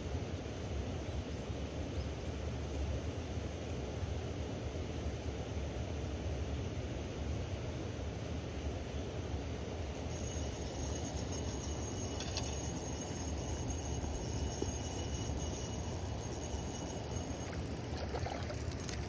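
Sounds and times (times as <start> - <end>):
faint high whine: 9.8 - 19.0.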